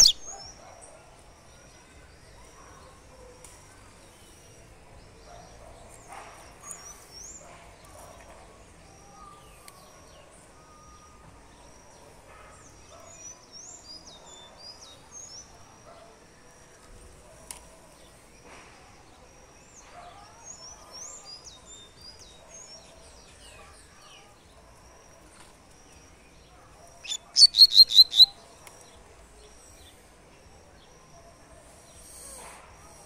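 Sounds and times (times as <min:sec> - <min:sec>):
bird whistled notes: 0:00.0 - 0:00.3, 0:27.0 - 0:28.4
bird twittering: 0:00.0 - 0:00.5, 0:27.0 - 0:28.4.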